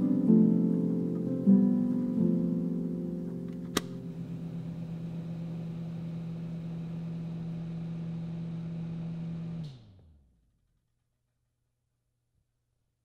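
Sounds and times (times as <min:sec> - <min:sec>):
low motor hum: 0:03.4 - 0:10.7.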